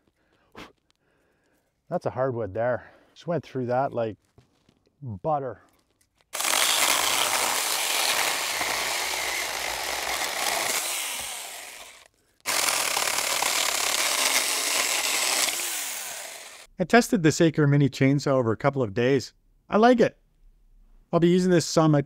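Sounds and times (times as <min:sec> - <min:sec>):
electric chainsaw cutting wood: 0:06.4 - 0:16.7.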